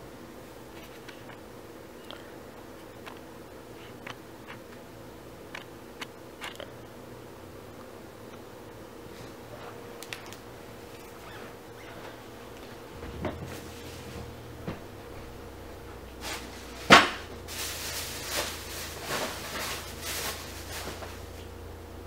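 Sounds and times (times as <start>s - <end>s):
faint steady hum: 0.0s - 22.0s
soft rustling: 10.8s - 15.4s, 16.1s - 21.5s.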